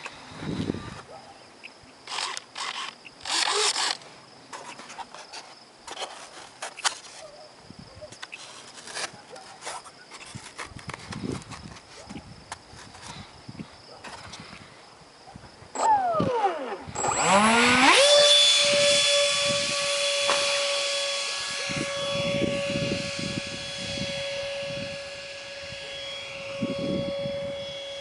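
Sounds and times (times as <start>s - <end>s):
ducted fan whine: 0.0s - 28.0s
wind buffeting microphone: 0.3s - 1.2s, 10.2s - 17.9s, 18.5s - 20.1s, 21.4s - 27.9s.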